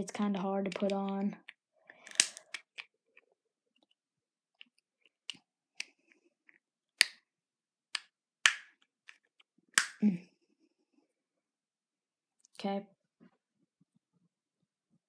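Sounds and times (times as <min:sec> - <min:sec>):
plastic mold halves snapping: 0:02.1 - 0:02.9, 0:07.9 - 0:09.2, 0:09.8 - 0:10.0.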